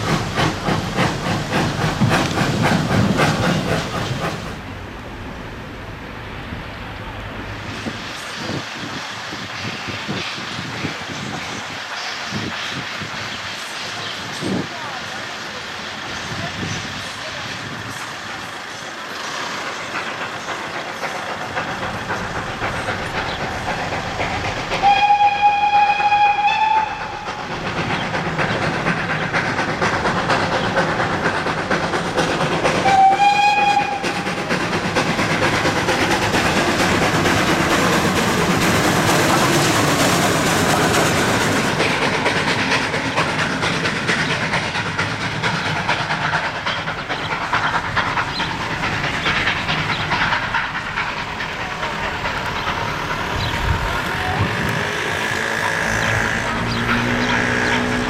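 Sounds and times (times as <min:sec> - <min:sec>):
steam locomotive running past: 0:00.0 - 0:58.0
steam whistle blasts: 0:24.8 - 0:27.2, 0:32.8 - 0:34.2.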